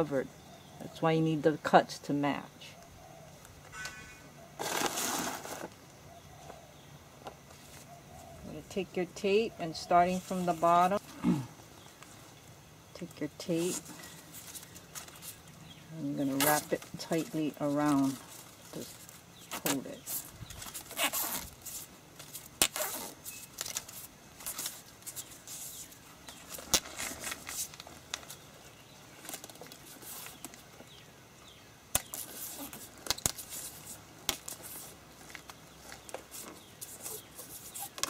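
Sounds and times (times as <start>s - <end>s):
plastic tape crinkling: 16.2s - 28.5s, 29.2s - 30.6s, 31.9s - 38.0s.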